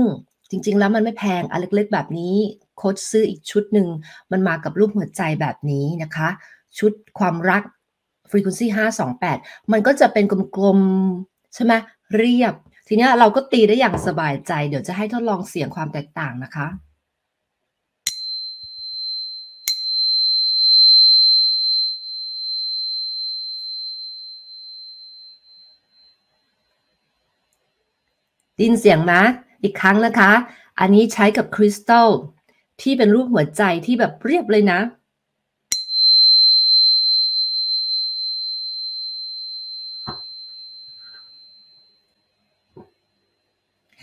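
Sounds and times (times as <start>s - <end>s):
tuning fork striking crystal: 18.1s - 26.1s, 35.7s - 41.9s
tuning fork ringing tone: 18.1s - 27.3s, 35.7s - 43.6s.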